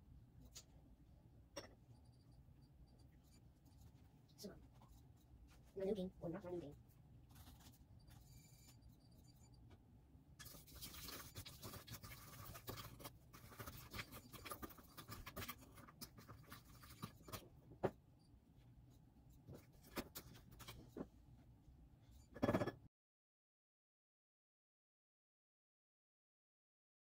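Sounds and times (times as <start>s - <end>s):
spoon scraping coffee grounds: 10.4s - 17.6s.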